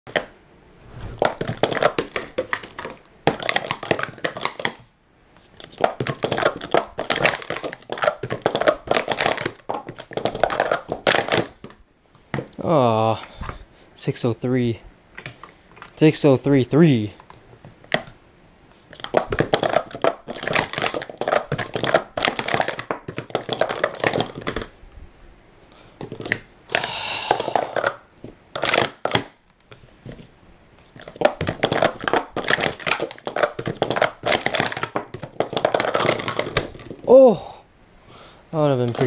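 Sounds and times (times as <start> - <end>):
plastic cups clacking: 1.2 - 4.8, 5.6 - 12.6, 18.9 - 24.7, 26.0 - 29.3, 30.9 - 37.1, 38.8 - 39.0.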